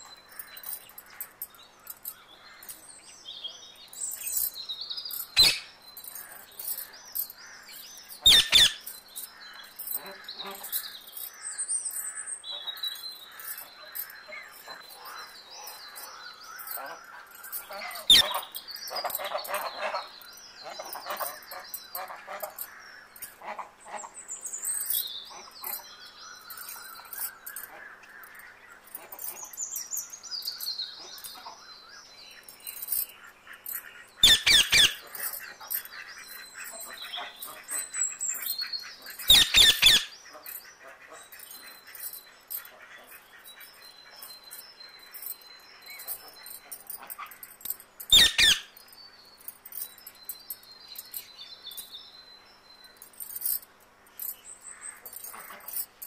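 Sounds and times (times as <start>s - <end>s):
birds chirping and whistling: 0.0s - 23.4s, 24.1s - 53.6s.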